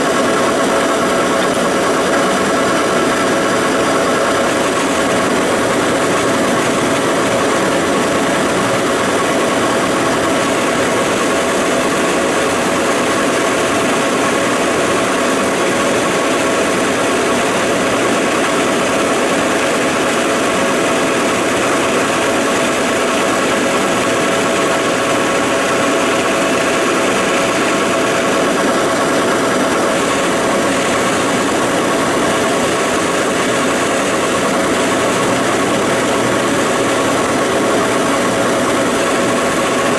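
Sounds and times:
faint high machine whine: 0.0s - 39.9s
lathe running: 0.0s - 39.9s.

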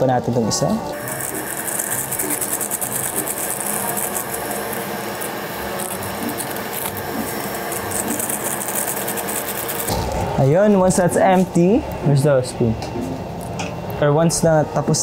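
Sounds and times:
broth boiling: 0.0s - 12.0s
packet crinkling: 1.0s - 9.9s.

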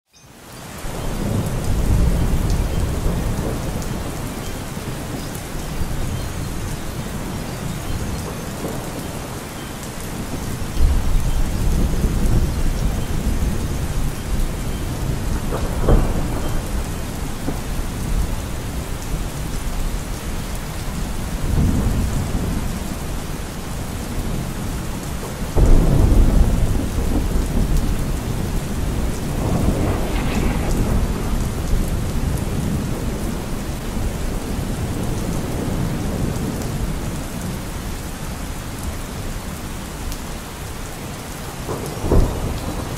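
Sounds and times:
steady rain: 0.1s - 42.9s
thunder rolling: 1.0s - 5.2s, 10.2s - 20.0s, 25.4s - 37.0s, 41.7s - 42.9s
sharp thunder crack: 25.6s - 33.4s.

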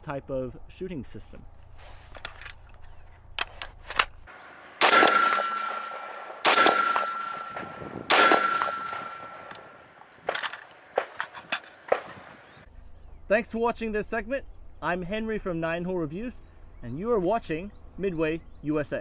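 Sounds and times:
rifle shots echoing: 4.8s - 11.2s.

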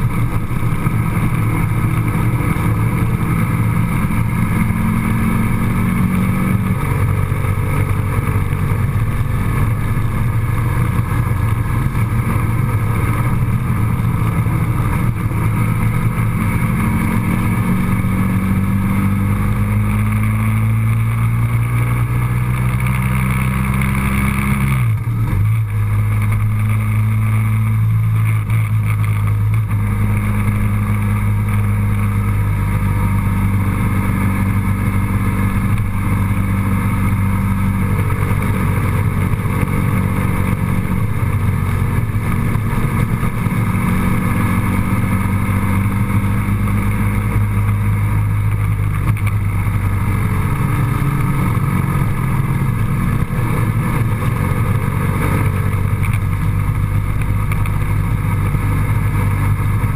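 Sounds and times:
road noise: 0.0s - 59.9s
vehicle engine running: 0.0s - 59.9s.

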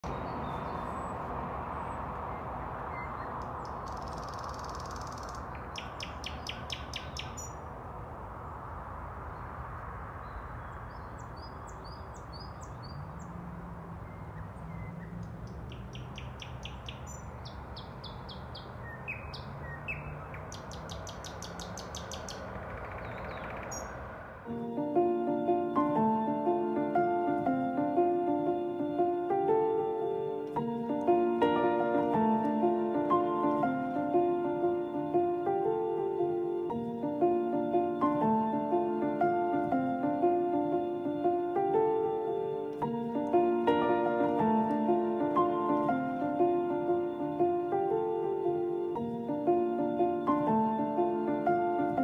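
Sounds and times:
bird chirps: 0.0s - 7.7s, 10.2s - 24.1s
songbirds trilling: 0.0s - 24.2s
music: 24.5s - 52.0s.

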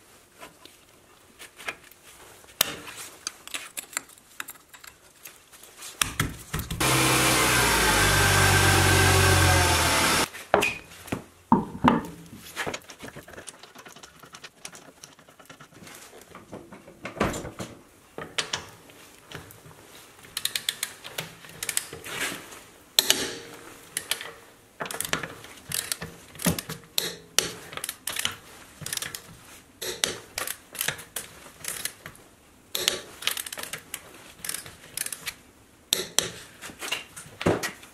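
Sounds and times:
power tool whirring: 6.8s - 10.3s
ratchet clicks: 21.6s - 21.9s, 24.9s - 26.7s, 31.6s - 32.0s, 33.2s - 35.4s.

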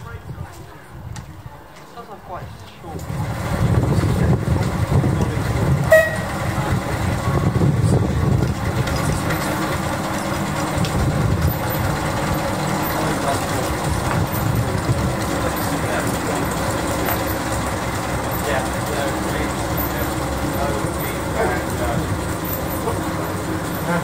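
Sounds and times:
train rumbling along track: 0.0s - 24.0s.

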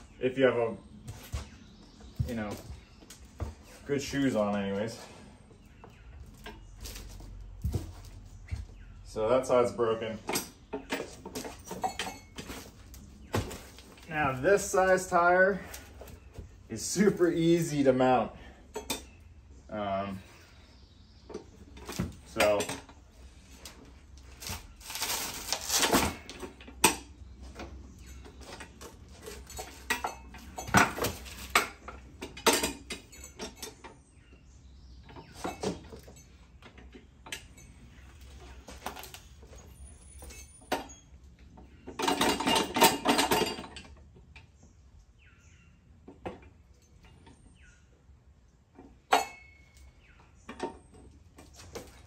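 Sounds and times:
metal clanks and rattles: 5.8s - 19.3s, 21.3s - 44.5s, 48.7s - 52.0s.

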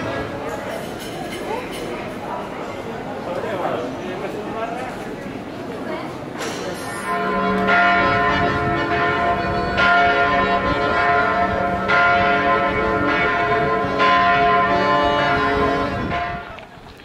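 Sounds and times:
church bells ringing: 6.6s - 16.6s.

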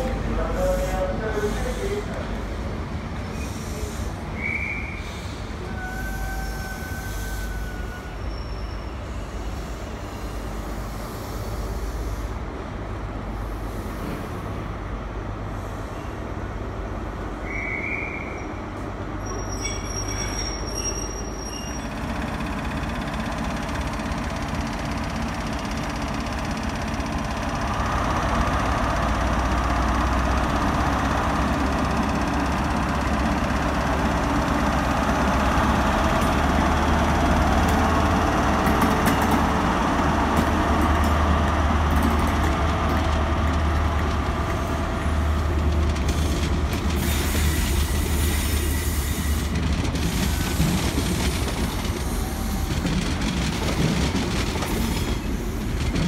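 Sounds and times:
train wheels hissing on rail: 0.0s - 12.6s, 13.3s - 14.8s, 15.4s - 16.5s, 44.7s - 56.0s
diesel train engine drone: 0.0s - 56.0s.

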